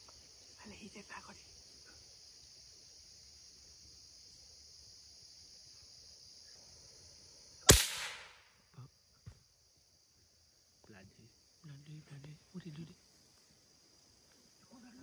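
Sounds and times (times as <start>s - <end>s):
high insect drone: 0.0s - 15.0s
gunshot: 7.7s - 8.4s.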